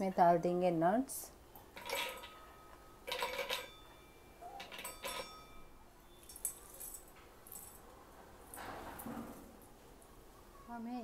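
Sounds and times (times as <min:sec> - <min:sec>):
nuts clinking into metal jar: 0:01.7 - 0:05.6, 0:06.2 - 0:07.8.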